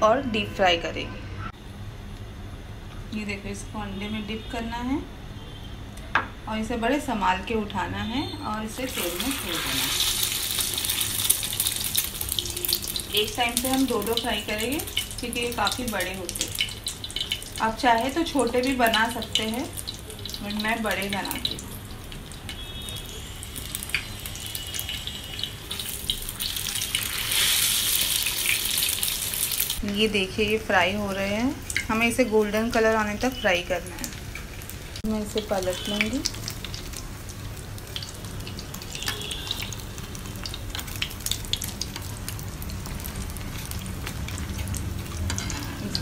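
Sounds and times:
hot oil sizzling with pops: 0:08.7 - 0:46.0.

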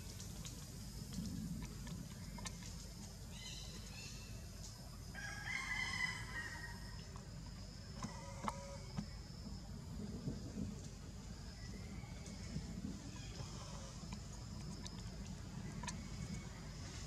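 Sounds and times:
rooster crowing: 0:05.2 - 0:06.8.

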